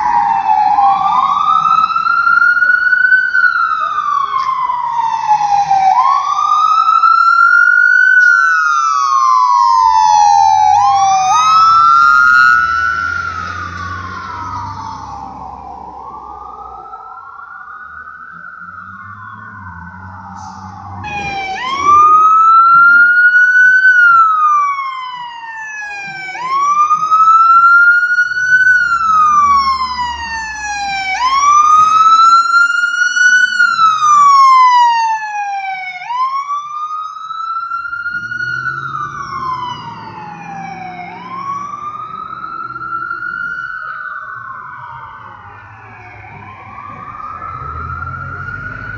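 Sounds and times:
fire engine siren wailing: 0.0s - 48.9s
low engine rumble: 9.6s - 27.3s, 37.9s - 48.9s.

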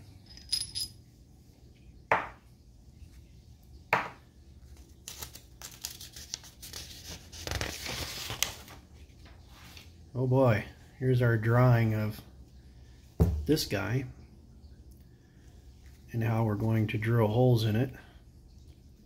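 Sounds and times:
paper rustling and sliding: 4.8s - 9.9s.

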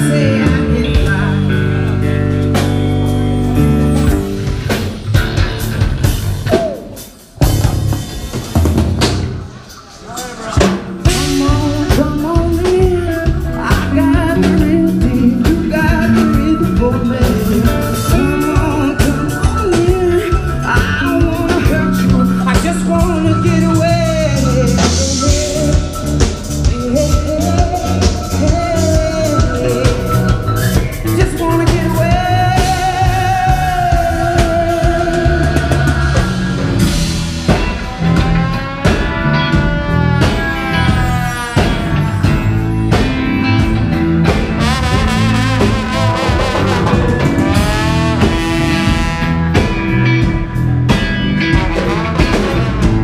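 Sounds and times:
person singing: 0.0s - 2.2s, 10.0s - 36.6s
drum kit beat: 0.0s - 53.0s
electric guitars and bass: 0.0s - 53.0s.

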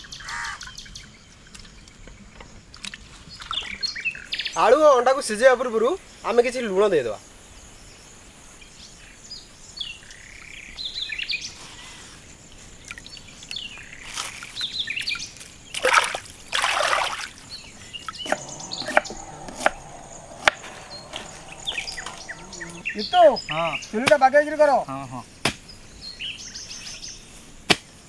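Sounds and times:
birds chirping: 12.8s - 24.6s
water sloshing and splashing: 15.4s - 22.8s
high insect whine: 15.9s - 23.8s.

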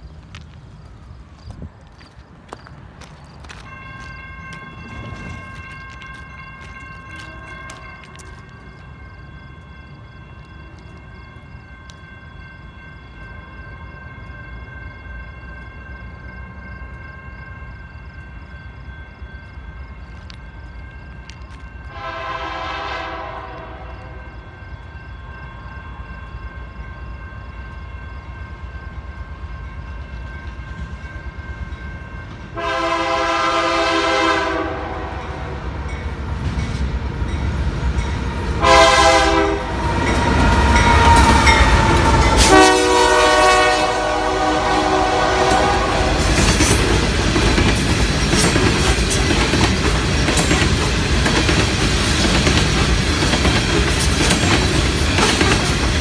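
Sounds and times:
train rumbling past: 0.0s - 56.0s
locomotive air horn blasts: 21.9s - 24.2s, 32.6s - 35.6s, 38.6s - 46.3s.

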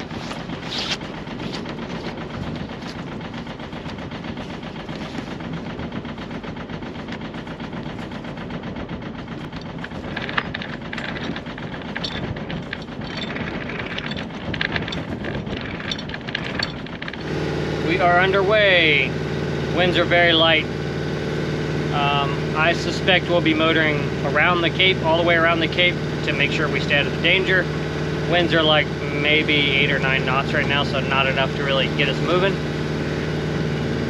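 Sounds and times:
higher clatter: 0.0s - 17.3s
boat engine running: 0.0s - 34.0s.

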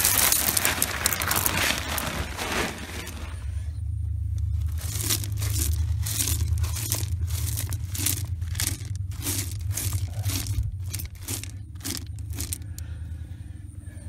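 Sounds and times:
hand raking gravel: 0.0s - 3.6s, 4.4s - 12.9s
steady low rumble: 0.0s - 14.0s.

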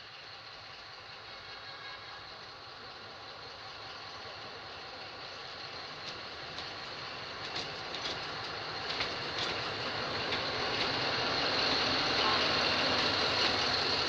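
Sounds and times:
diesel locomotive engine running: 0.0s - 14.0s
wheels clicking over rail joints: 4.3s - 14.0s.

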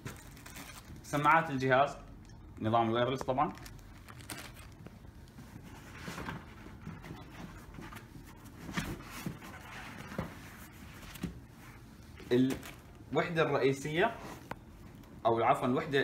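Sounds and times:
soft rustling in plastic case: 3.0s - 15.1s.

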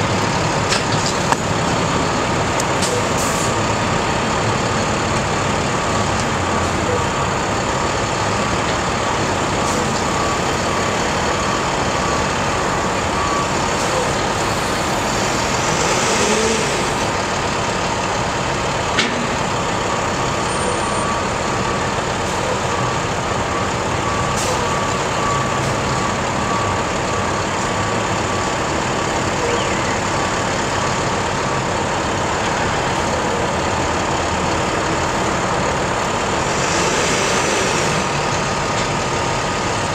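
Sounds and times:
truck engine running: 0.0s - 39.9s.

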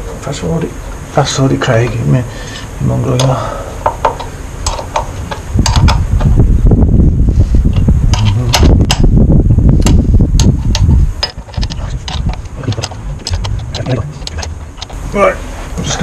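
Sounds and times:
spanner clicking and scraping: 2.6s - 6.4s, 9.8s - 15.0s
low rumble: 5.2s - 16.0s.

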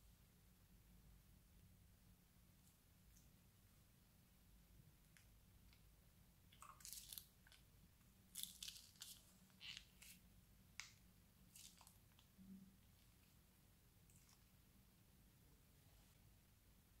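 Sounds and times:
plastic piping bag crinkling: 6.5s - 7.7s, 8.3s - 10.2s, 10.8s - 13.3s.

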